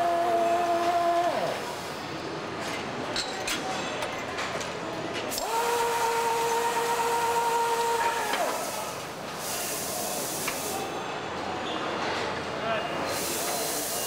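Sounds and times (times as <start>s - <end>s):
air-powered tool whining: 0.0s - 2.0s, 5.3s - 10.8s
factory background noise: 0.0s - 14.0s
hiss: 5.3s - 10.9s, 13.1s - 14.0s.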